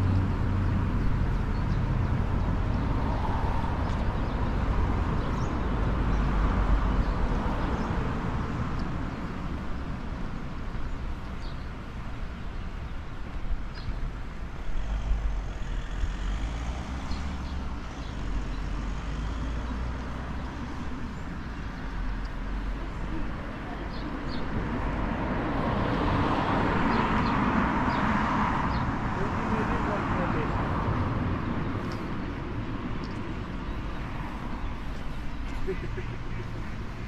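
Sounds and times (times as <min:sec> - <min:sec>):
low rumble of road traffic: 0:00.0 - 0:37.0.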